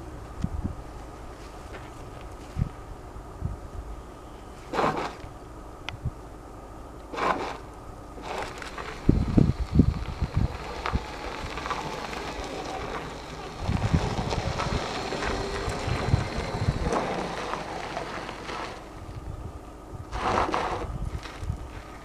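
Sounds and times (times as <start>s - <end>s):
wind buffeting microphone: 0.0s - 0.9s, 2.5s - 4.0s, 8.2s - 22.0s.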